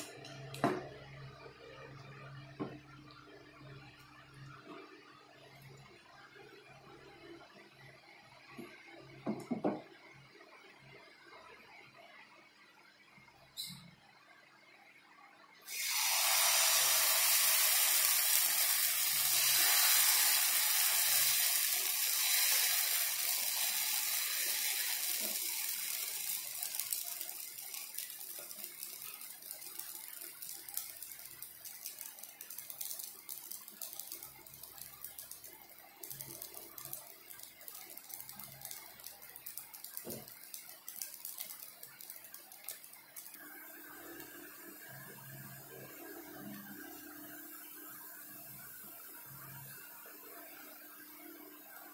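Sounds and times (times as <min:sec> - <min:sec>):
batter sizzling in hot oil: 0:15.6 - 0:51.9.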